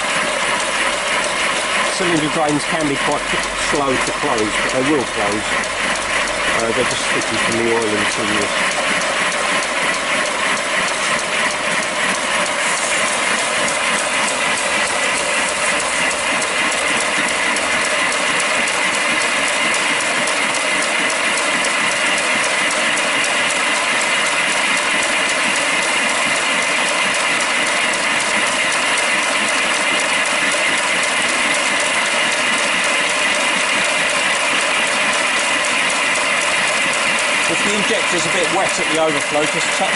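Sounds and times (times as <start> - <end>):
steam hissing: 0.0 - 39.9
steam locomotive exhaust clatter: 0.0 - 39.9.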